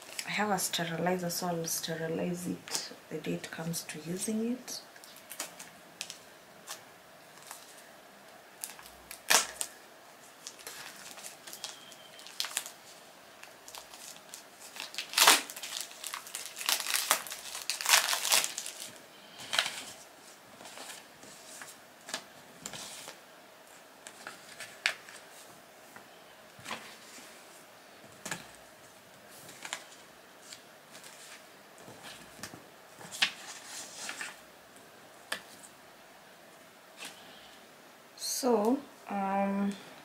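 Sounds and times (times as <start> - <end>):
plastic packaging crinkling: 5.0 - 7.8, 8.6 - 23.2, 29.4 - 34.4.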